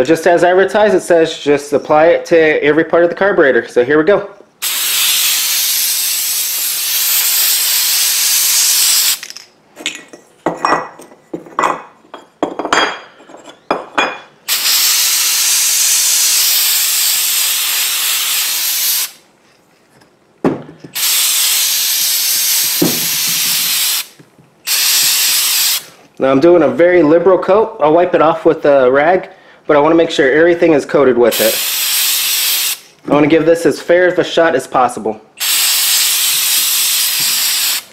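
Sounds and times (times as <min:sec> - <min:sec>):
aerosol can spraying: 0:04.6 - 0:09.4, 0:14.5 - 0:19.2, 0:21.0 - 0:26.0, 0:31.3 - 0:32.9, 0:35.4 - 0:37.9.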